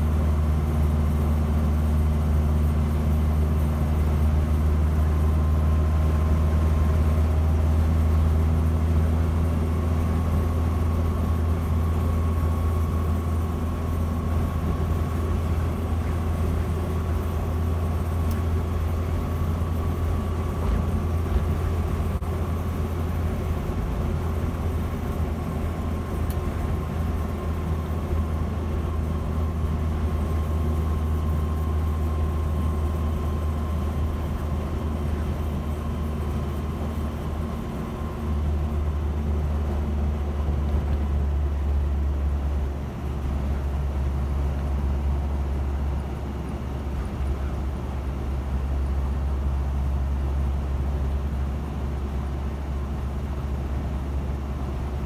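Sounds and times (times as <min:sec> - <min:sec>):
car engine drone: 0:00.0 - 0:55.0
faint steady whine: 0:00.0 - 0:55.0
road noise: 0:03.5 - 0:55.0.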